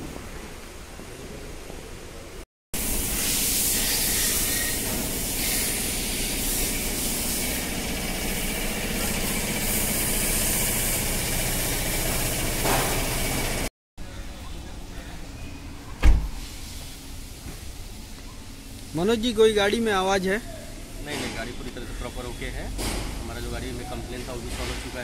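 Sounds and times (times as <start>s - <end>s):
loud steady hiss: 2.8s - 13.7s.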